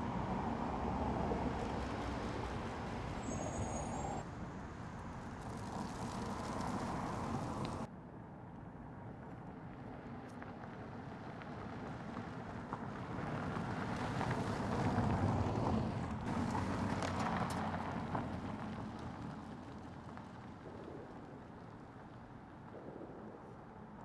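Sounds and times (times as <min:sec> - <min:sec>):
car driving past on dirt road: 0:13.4 - 0:20.8.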